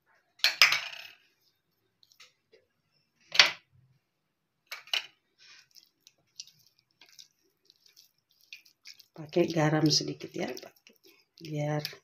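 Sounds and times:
hands rubbing raw chicken: 0:05.4 - 0:12.0.

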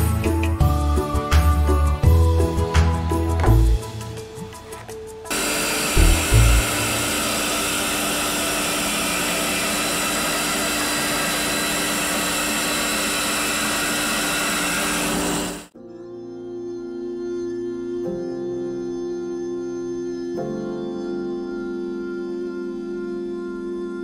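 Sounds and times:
bandsaw cutting wood: 0:03.3 - 0:15.7
motor hum: 0:03.4 - 0:15.7.

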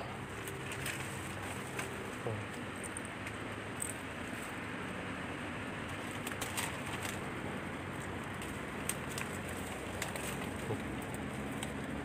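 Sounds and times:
dry brush and twigs crackling: 0:00.0 - 0:12.0.

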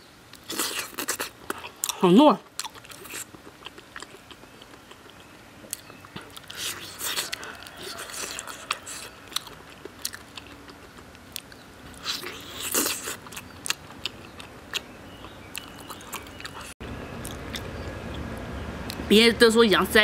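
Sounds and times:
person chewing meat: 0:00.3 - 0:19.0
lips and teeth clicking: 0:02.6 - 0:18.2.

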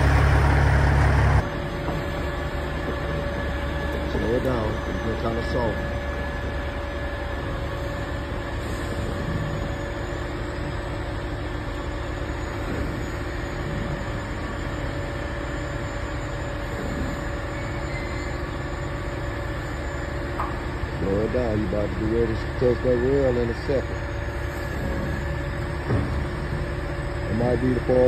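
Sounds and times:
thin even whine: 0:00.0 - 0:02.4
truck engine rumbling: 0:00.0 - 0:28.0.

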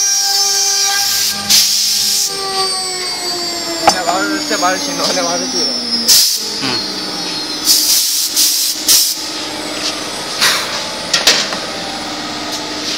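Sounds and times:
router machine humming: 0:00.0 - 0:07.6.

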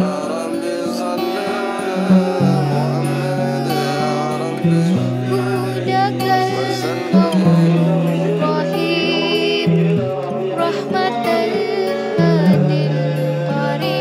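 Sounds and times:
person singing: 0:00.0 - 0:14.0.

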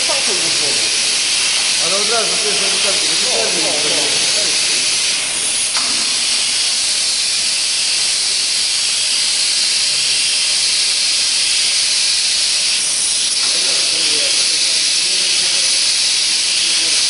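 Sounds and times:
machine hissing gas: 0:00.0 - 0:17.0.

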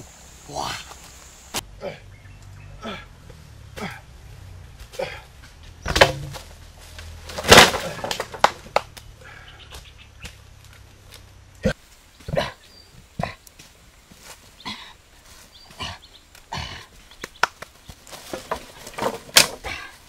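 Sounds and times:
branches crashing onto ground: 0:04.8 - 0:09.1, 0:17.2 - 0:20.0
wood knocks and rustles: 0:05.9 - 0:08.8, 0:17.9 - 0:19.7.

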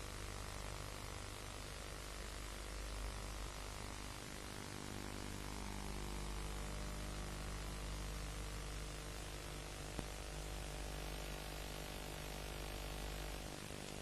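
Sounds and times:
low mains hum: 0:00.0 - 0:14.0
tape hiss: 0:00.0 - 0:14.0.

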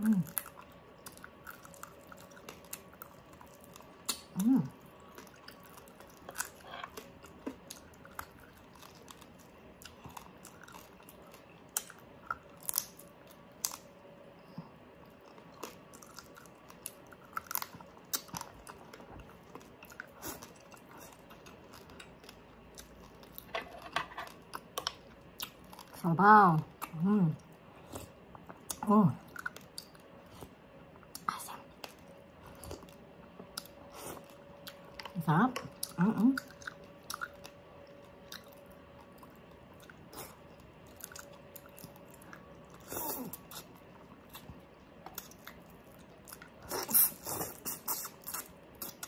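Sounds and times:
crispy food chewing: 0:00.0 - 0:49.0
person humming: 0:04.4 - 0:04.8.

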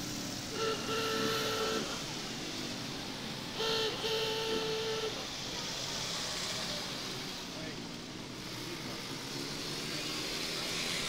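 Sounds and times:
cars passing: 0:00.0 - 0:11.0
vehicle horn honking: 0:00.5 - 0:02.0, 0:03.6 - 0:05.2.

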